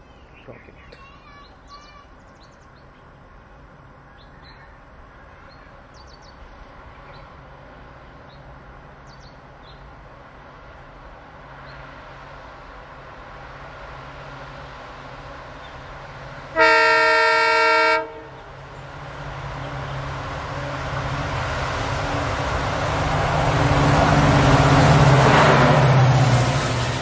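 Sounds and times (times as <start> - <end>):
birds chirping: 0.0 - 3.2, 15.3 - 16.1
rail noise: 0.0 - 27.0
diesel locomotive engine drone: 1.5 - 27.0.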